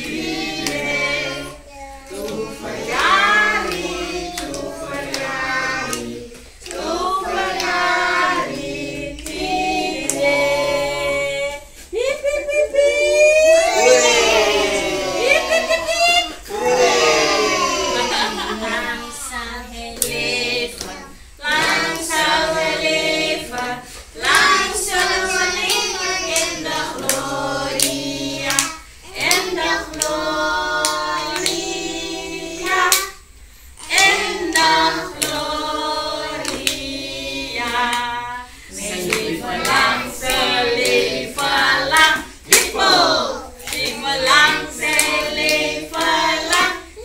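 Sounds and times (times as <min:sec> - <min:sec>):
group singing: 0:00.0 - 0:12.2, 0:13.6 - 0:47.0
hand claps: 0:03.0 - 0:07.8, 0:23.5 - 0:30.2, 0:30.8 - 0:31.7, 0:33.8 - 0:35.5, 0:36.4 - 0:36.9, 0:38.8 - 0:46.8.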